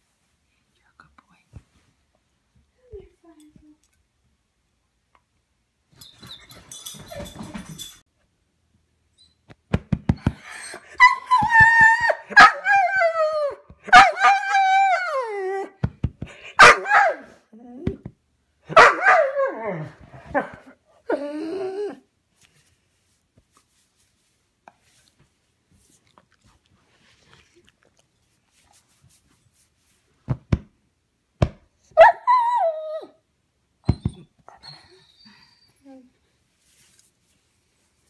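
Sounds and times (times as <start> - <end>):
dog howling and whining: 10.7 - 15.8, 18.8 - 22.1, 32.0 - 33.2.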